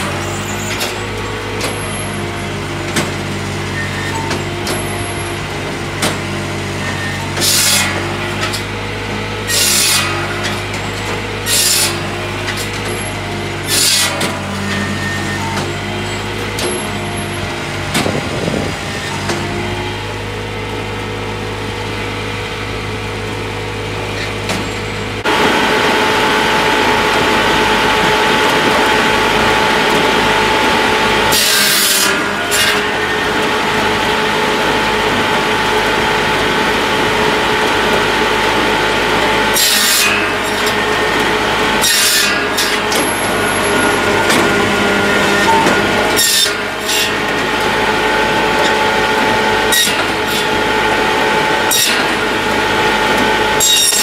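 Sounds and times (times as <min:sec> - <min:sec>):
saw cutting wood: 0:00.0 - 0:20.7, 0:24.1 - 0:54.0
tractor engine running: 0:00.0 - 0:54.0.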